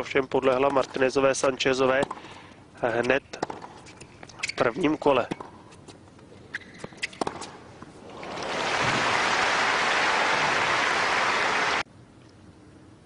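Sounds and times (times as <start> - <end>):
crowd applauding: 8.1 - 11.8.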